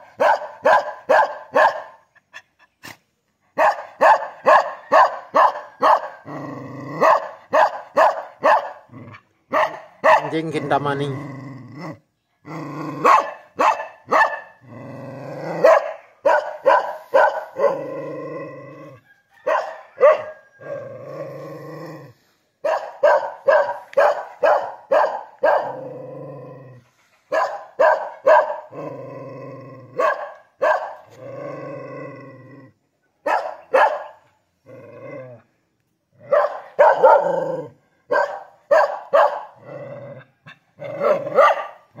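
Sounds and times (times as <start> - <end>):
dog barking: 0.0 - 2.0, 3.6 - 6.2, 7.0 - 8.9, 9.5 - 10.6, 13.0 - 14.6, 15.6 - 17.9, 19.4 - 20.5, 22.6 - 25.8, 27.3 - 28.7, 30.0 - 31.1, 33.2 - 34.3, 36.2 - 39.6, 40.5 - 42.0.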